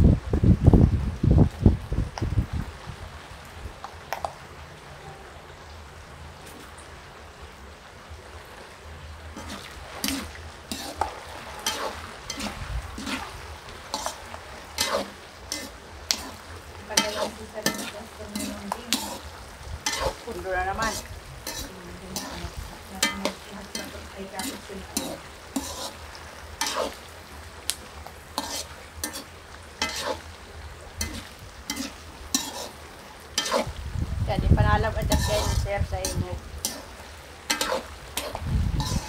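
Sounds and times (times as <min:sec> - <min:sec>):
hot oil sizzling: 0:00.0 - 0:39.0
metal skimmer scraping a wok: 0:09.3 - 0:27.0, 0:28.3 - 0:30.3, 0:31.0 - 0:33.8, 0:34.6 - 0:39.0.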